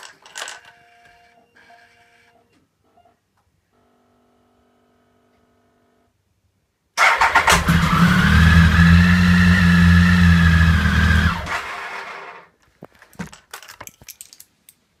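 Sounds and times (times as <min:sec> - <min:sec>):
electric starter whining: 0:07.0 - 0:12.5.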